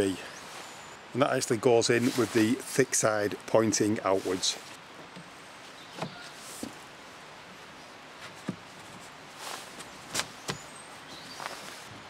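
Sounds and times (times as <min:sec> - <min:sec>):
steady background hiss: 0:00.0 - 0:12.0
footsteps on stone paving: 0:08.2 - 0:12.0.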